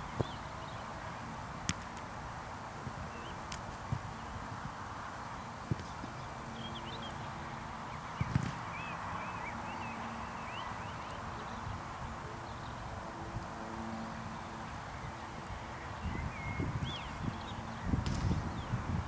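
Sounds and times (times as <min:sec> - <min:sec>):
small birds chirping: 0:00.0 - 0:01.3, 0:02.8 - 0:13.0, 0:14.2 - 0:19.0
steady background hiss: 0:00.0 - 0:19.0.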